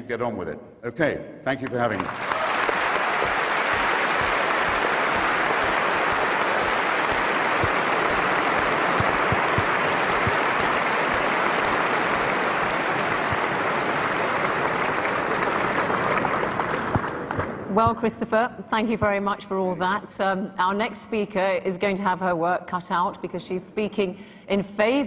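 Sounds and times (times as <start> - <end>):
audience applauding: 1.6 - 17.7.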